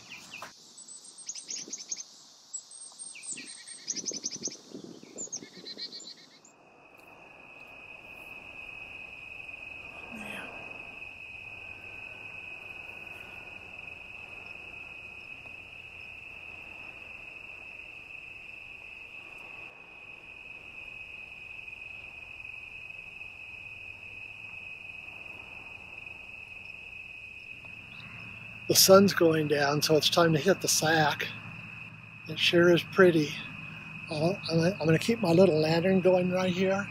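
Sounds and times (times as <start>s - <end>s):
bird chirps: 0.0s - 6.5s
insects trilling: 0.0s - 36.9s.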